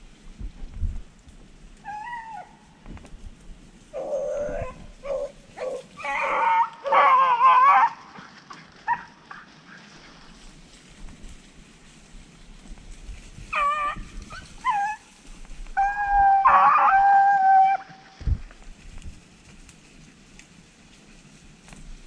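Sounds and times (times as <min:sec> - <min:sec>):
dogs baying: 0:03.9 - 0:10.2.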